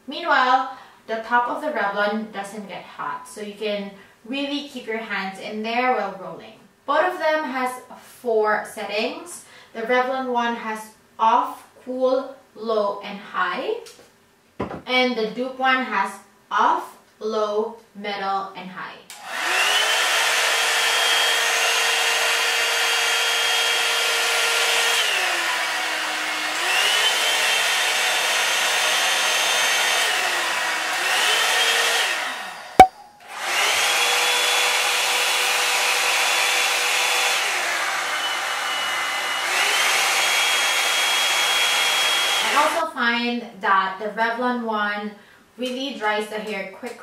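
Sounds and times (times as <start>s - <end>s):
hair dryer whine and air rush: 19.1s - 42.8s.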